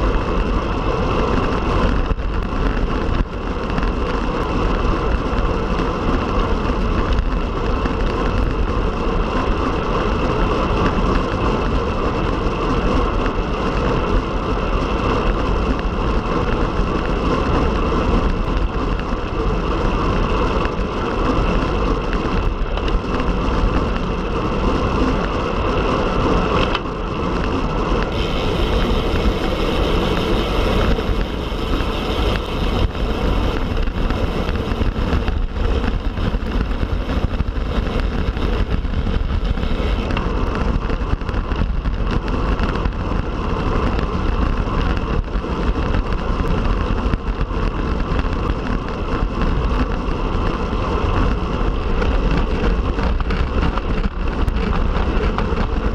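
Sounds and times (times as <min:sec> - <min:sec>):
bicycle tyre noise: 0:00.0 - 0:55.9
wind rushing on microphone: 0:00.0 - 0:55.9.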